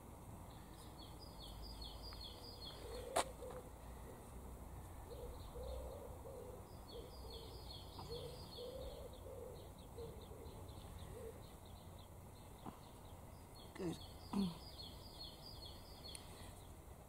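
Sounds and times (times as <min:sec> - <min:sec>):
songbird chirping rapidly: 0:00.5 - 0:03.6, 0:05.0 - 0:16.9
pigeon cooing: 0:02.7 - 0:04.2, 0:05.1 - 0:11.5.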